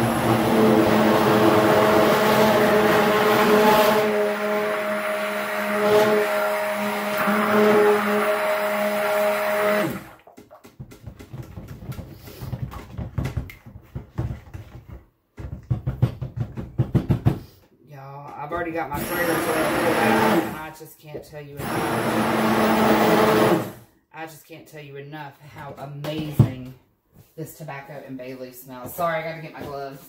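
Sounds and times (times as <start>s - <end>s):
stick blender motor whine: 0.0s - 10.2s, 18.9s - 20.6s, 21.6s - 23.8s.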